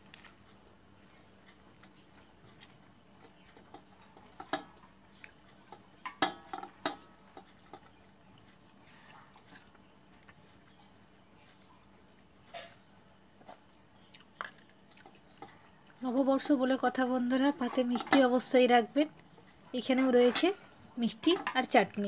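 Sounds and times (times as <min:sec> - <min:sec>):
metallic taps on plate: 0:03.6 - 0:04.8, 0:05.7 - 0:08.0.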